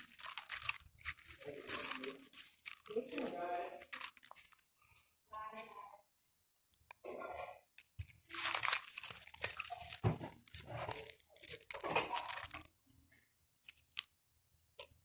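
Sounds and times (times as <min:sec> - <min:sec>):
paper pieces rustling and crinkling: 0:00.0 - 0:04.7, 0:07.8 - 0:12.7, 0:13.6 - 0:14.1.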